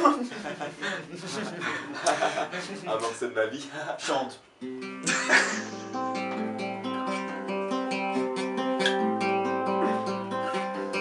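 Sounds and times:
acoustic guitar strumming: 4.5 - 11.0.

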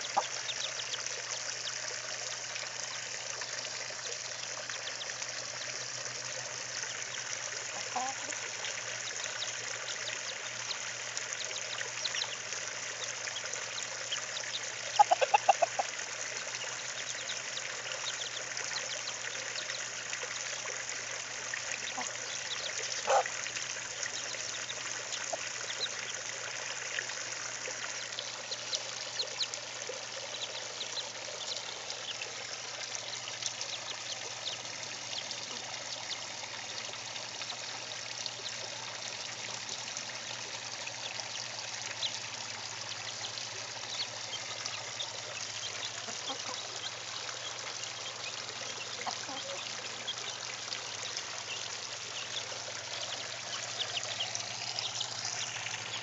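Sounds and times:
chickens clucking: 7.8 - 8.4, 14.9 - 15.9, 23.0 - 23.3, 45.5 - 48.0, 49.0 - 50.1.

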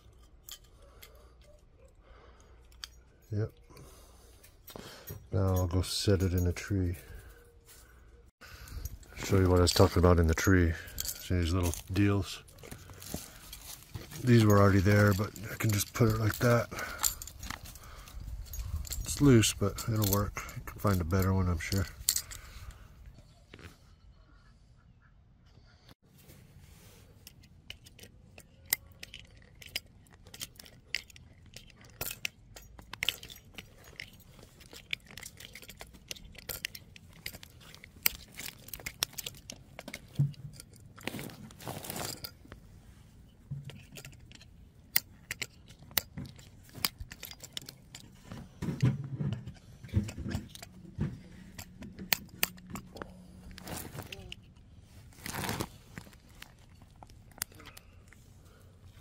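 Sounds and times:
small metallic clicks and clinks: 0.0 - 7.4, 8.4 - 23.7, 26.9 - 59.0
scraping rustle: 33.1 - 44.4.

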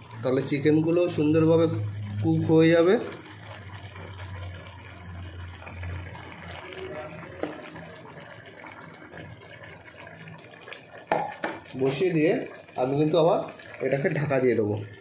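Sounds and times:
pot of water bubbling: 0.0 - 15.0.

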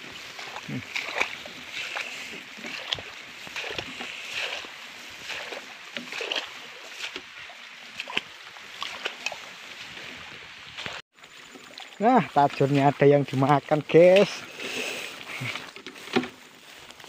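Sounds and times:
footsteps through wet grass: 0.0 - 17.0.

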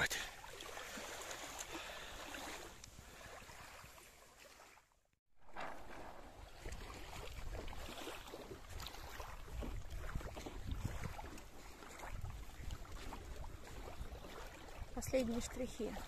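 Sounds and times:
wind buffeting microphone: 6.4 - 16.0.

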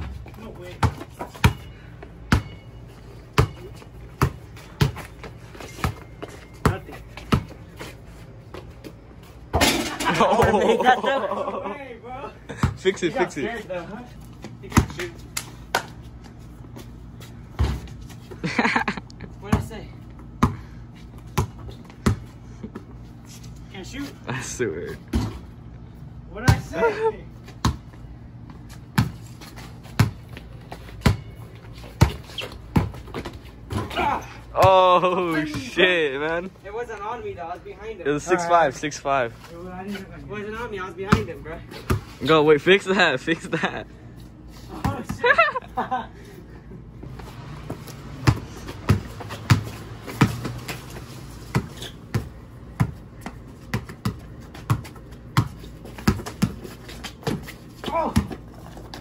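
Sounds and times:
basketball bouncing on brick: 0.0 - 2.6, 3.3 - 7.6, 19.4 - 19.7, 20.4 - 22.8, 27.6 - 28.0, 28.9 - 29.2, 29.9 - 31.4, 32.0 - 34.7, 47.7 - 59.0.

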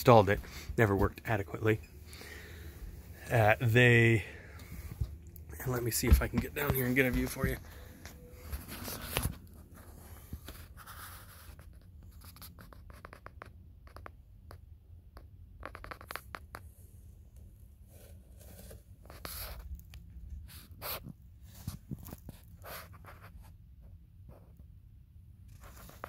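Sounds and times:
low steady hum: 0.0 - 12.9
person shifting on hands and knees: 3.2 - 9.5.

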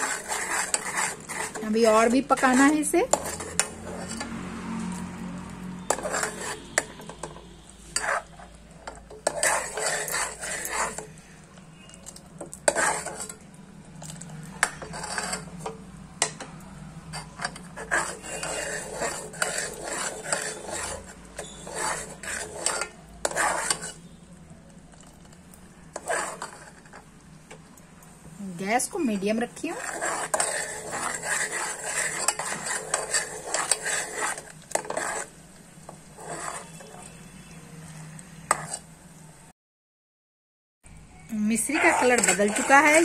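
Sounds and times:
syrup bubbling: 0.0 - 16.4, 17.1 - 24.2, 29.6 - 35.4, 41.5 - 43.0
metal spoon scraping metal pot: 0.0 - 24.2, 25.9 - 27.1, 28.8 - 35.4, 36.0 - 37.6, 38.4 - 38.9, 41.4 - 43.0.

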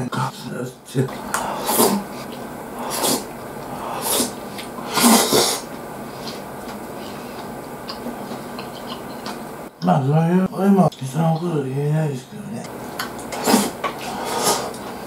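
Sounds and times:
man slurping from spoon: 1.1 - 6.5, 13.3 - 15.0.

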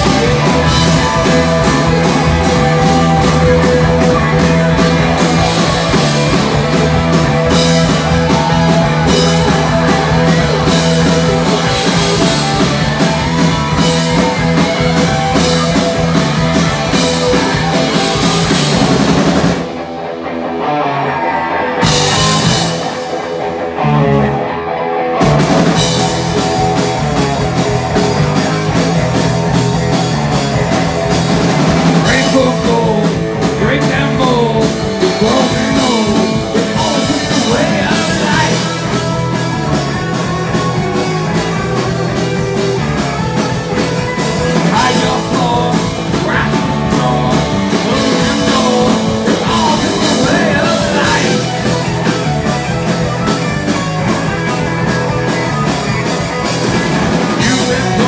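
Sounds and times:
bass guitar: 0.0 - 58.0
drum kit: 0.0 - 58.0
electric guitars: 0.0 - 58.0
man singing: 32.0 - 39.2, 44.4 - 51.7.

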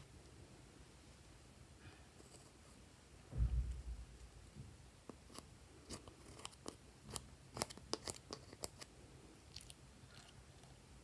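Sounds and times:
spatula scraping eyeshadow: 5.2 - 8.8.

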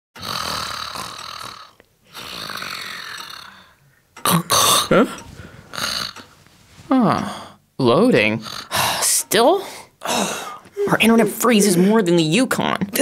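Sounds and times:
bear snoring: 0.2 - 3.8, 5.7 - 6.3, 8.4 - 8.8.

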